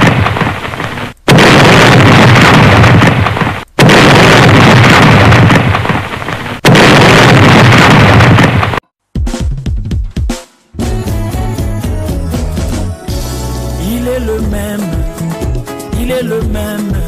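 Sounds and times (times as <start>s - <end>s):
rumbling boom: 1.3s - 6.1s, 6.7s - 8.8s.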